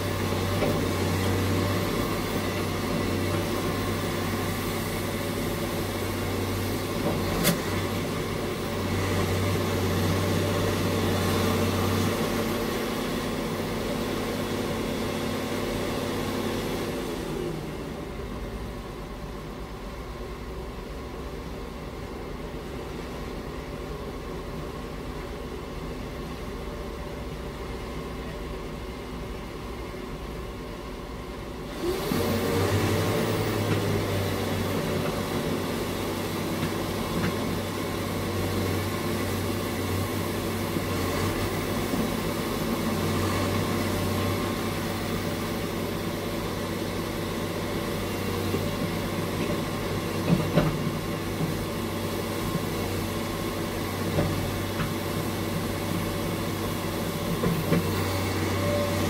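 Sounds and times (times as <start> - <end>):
excavator diesel engine: 0.0 - 59.0
hydraulic work noise: 31.7 - 45.5.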